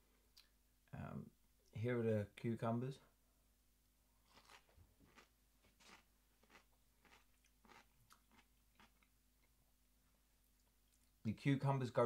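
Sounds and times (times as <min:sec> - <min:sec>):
crunchy salad being chewed: 0:04.2 - 0:09.1.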